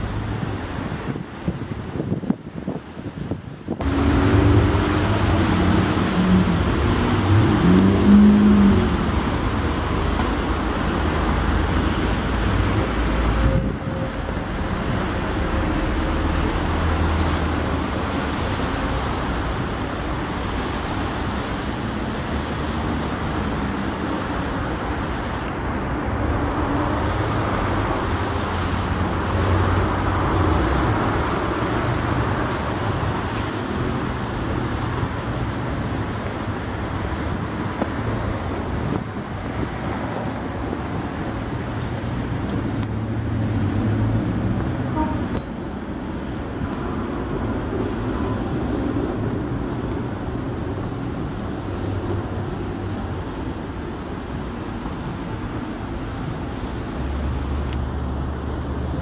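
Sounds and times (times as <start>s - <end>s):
cars and trams on wet road: 0.0s - 59.0s.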